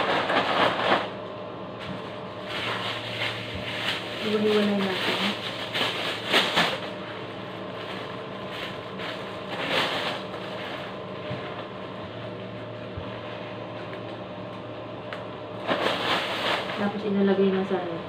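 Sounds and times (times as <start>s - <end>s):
plastic bag rustling: 1.9s - 13.7s, 15.6s - 17.1s.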